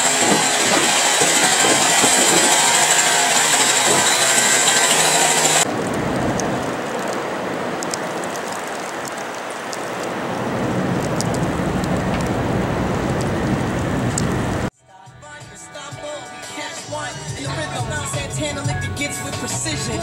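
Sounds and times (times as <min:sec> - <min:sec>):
snow blower hissing: 0:00.0 - 0:14.7
snowstorm hiss: 0:00.0 - 0:14.7.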